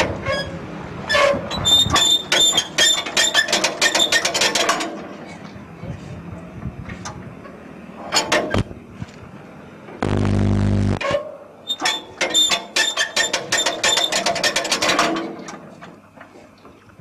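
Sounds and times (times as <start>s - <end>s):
engine hand-cranked clattering: 1.2s - 5.6s, 11.7s - 16.3s
steady buzz: 10.0s - 11.0s.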